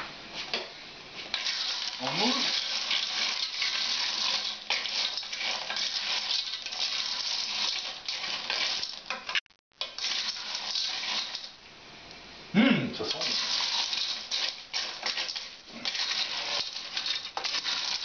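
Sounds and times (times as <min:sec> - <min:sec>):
shells rattling in a metal pot: 0:01.3 - 0:11.6, 0:13.1 - 0:18.0
short voice sound: 0:12.6 - 0:13.2.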